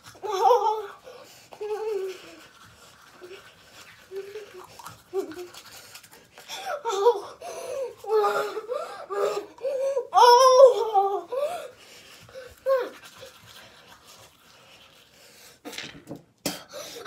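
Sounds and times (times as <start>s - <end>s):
girl making wordless vocal sounds: 6.8s - 11.7s.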